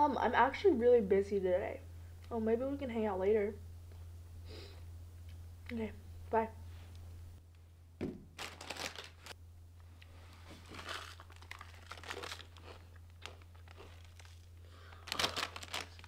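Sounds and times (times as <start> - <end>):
steady low hum: 0.0 - 16.0
chip bag crinkling: 8.3 - 9.4, 10.3 - 16.0
chips crunching: 8.4 - 9.4, 10.6 - 16.0.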